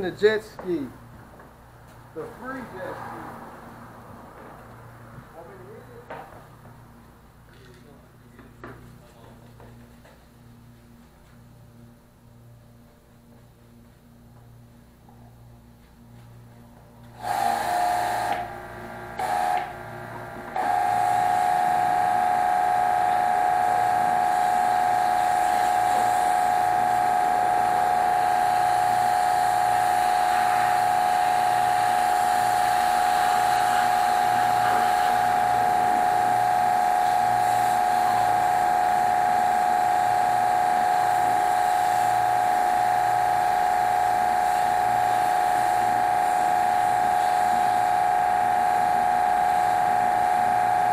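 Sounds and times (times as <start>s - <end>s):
electric pressure washer whining: 17.1s - 50.9s.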